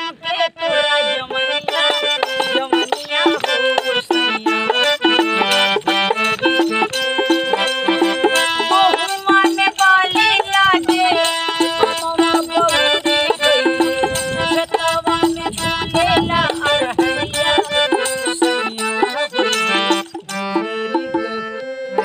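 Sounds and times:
woman singing: 0:00.0 - 0:05.7, 0:07.9 - 0:19.8
hand drum finger beats: 0:01.3 - 0:22.0.

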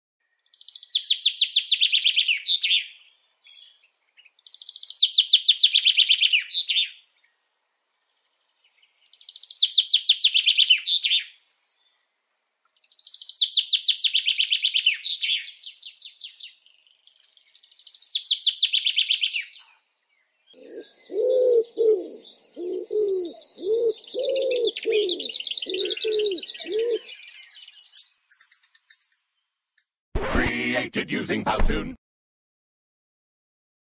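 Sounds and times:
songbird trilling: 0:09.1 - 0:11.3, 0:12.8 - 0:19.6, 0:20.6 - 0:29.3
dove cooing: 0:20.6 - 0:27.2.

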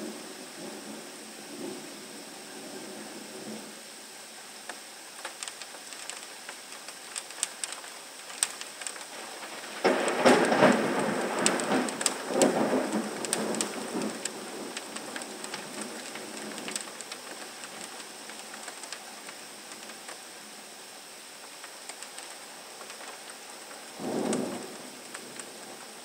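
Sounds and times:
heavy rain: 0:00.0 - 0:26.0
thunder rumbling: 0:05.2 - 0:20.2, 0:22.9 - 0:26.0.

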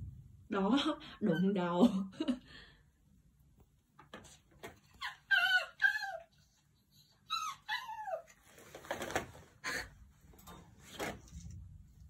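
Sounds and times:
animal high-pitched cries: 0:04.9 - 0:08.4
scraping and rustling: 0:08.3 - 0:09.6.

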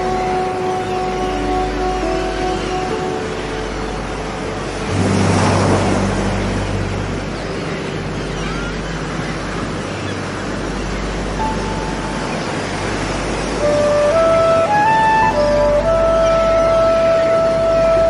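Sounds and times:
faint background music: 0:00.0 - 0:18.0
surf breaking on shore: 0:02.0 - 0:15.9.

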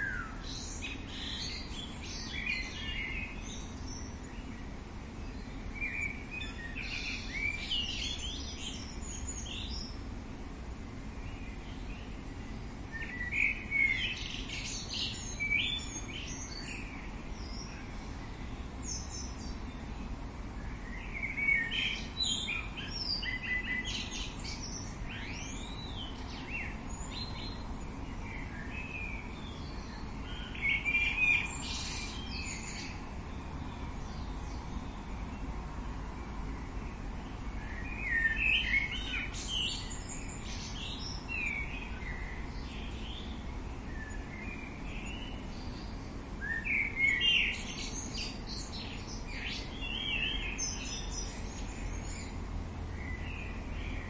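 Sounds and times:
low background noise: 0:00.0 - 0:54.0
songbirds chirping and warbling: 0:00.0 - 0:54.0
whistled bird notes: 0:12.9 - 0:17.9, 0:20.6 - 0:27.6, 0:37.6 - 0:43.3, 0:43.9 - 0:52.3.

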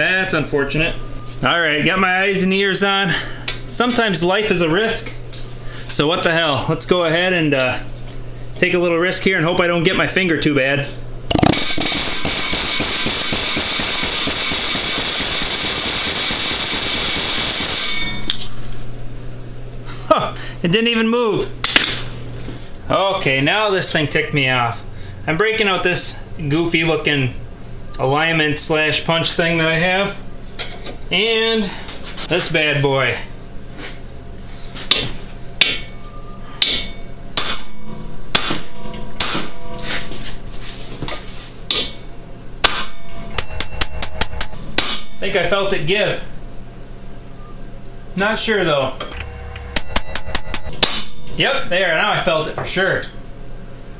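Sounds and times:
hammer striking steel punch: 0:11.3 - 0:18.5, 0:34.9 - 0:35.9, 0:36.6 - 0:39.8, 0:42.6 - 0:45.2, 0:49.0 - 0:51.4
pneumatic air hammer blows: 0:11.3 - 0:18.6.

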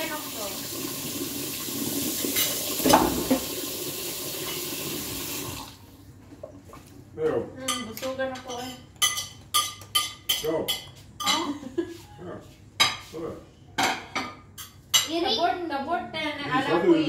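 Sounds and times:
running water: 0:00.0 - 0:05.9.

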